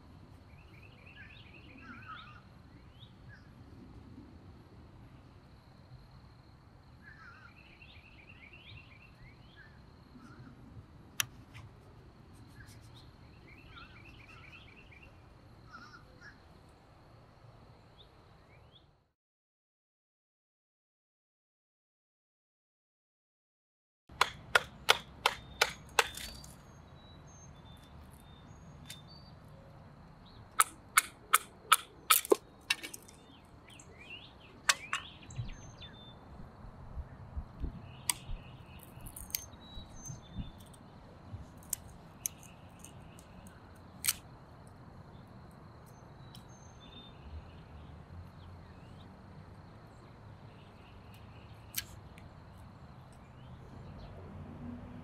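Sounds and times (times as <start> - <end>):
small birds chirping: 11.2 - 16.6, 24.7 - 54.2
knife splitting wood cracks: 24.1 - 26.6, 30.6 - 33.2, 38.1 - 40.8, 44.0 - 44.3.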